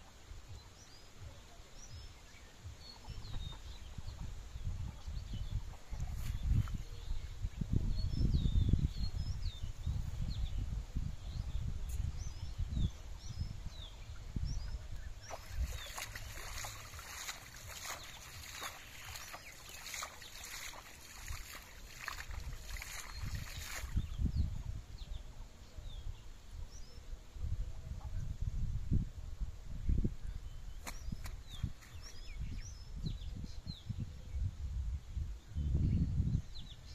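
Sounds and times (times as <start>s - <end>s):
birds chirping: 11.3s - 27.1s
water splashing: 15.2s - 24.1s.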